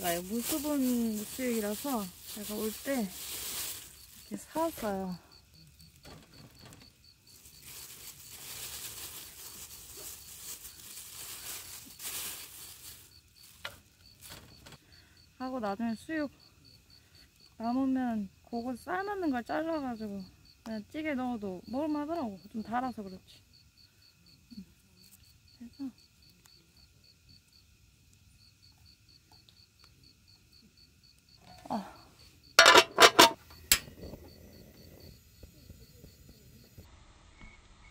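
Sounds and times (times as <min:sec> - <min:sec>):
plastic packaging crinkling: 0:00.0 - 0:04.8, 0:07.3 - 0:14.5
crickets chirping: 0:00.0 - 0:37.6
metal pot lid clanging: 0:32.6 - 0:33.9.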